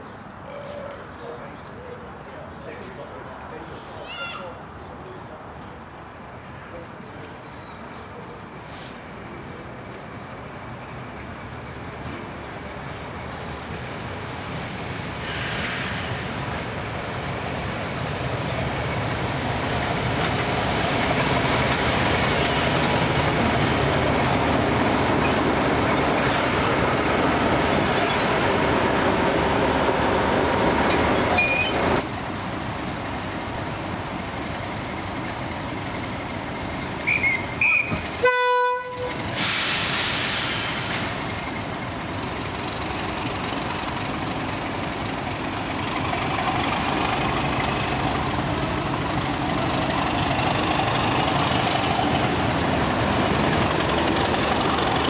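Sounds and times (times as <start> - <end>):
train passing: 0.0 - 55.0
diesel locomotive engine running: 8.1 - 55.0
train horn: 38.2 - 39.2.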